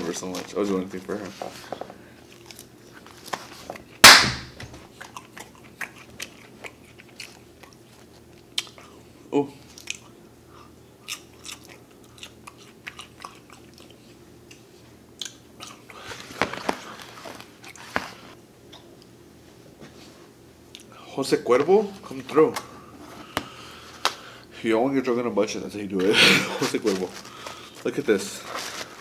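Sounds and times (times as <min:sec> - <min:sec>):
crunchy chewing of salad: 0:02.2 - 0:04.0, 0:04.8 - 0:18.9
crackling handling noise: 0:26.6 - 0:29.0.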